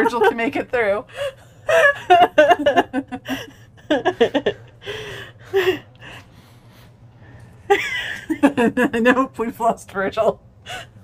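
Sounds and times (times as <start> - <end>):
person laughing helplessly: 1.2 - 6.0, 7.7 - 9.0
gasping breaths: 4.8 - 7.5.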